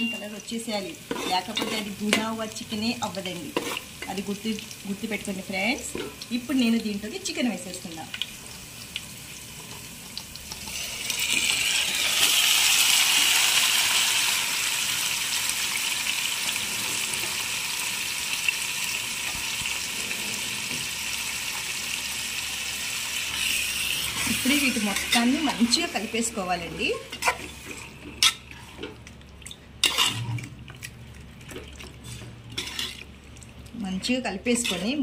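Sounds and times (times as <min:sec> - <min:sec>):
chicken sizzling in hot oil: 0:00.0 - 0:28.4.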